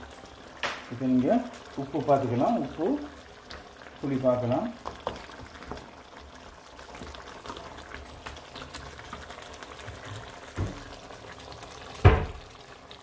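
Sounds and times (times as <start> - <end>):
curry simmering with bubbles popping: 0.0 - 13.0
soft thump: 12.0 - 12.4.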